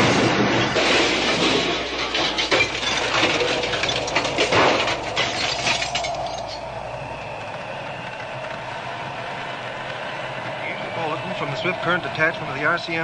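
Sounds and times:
glass shattering: 0:00.0 - 0:06.6
glass and debris clinking down: 0:00.5 - 0:06.6.

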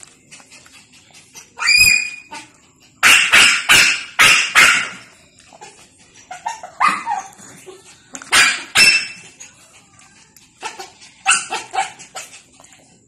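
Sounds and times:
puppy barking: 0:01.6 - 0:05.2, 0:06.3 - 0:07.4, 0:08.2 - 0:09.4, 0:10.6 - 0:12.3.

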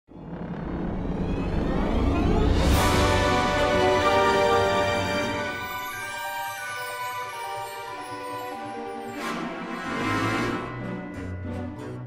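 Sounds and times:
low rumbling build: 0:00.1 - 0:04.0
theme music: 0:00.1 - 0:12.0.

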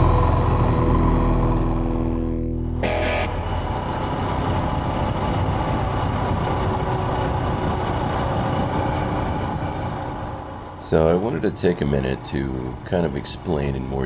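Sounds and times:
music: 0:00.0 - 0:03.4
motorcycle engine running: 0:00.0 - 0:10.0
rushing noise: 0:00.0 - 0:11.0.

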